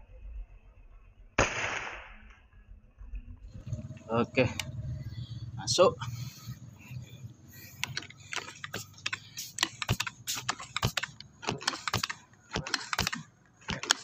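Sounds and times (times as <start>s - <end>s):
sharp clicks and light knocks: 7.6s - 14.0s.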